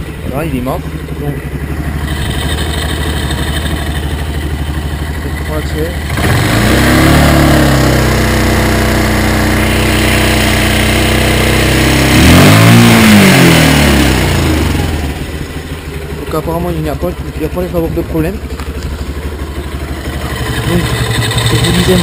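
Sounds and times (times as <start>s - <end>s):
quad engine revving: 0.0s - 22.0s.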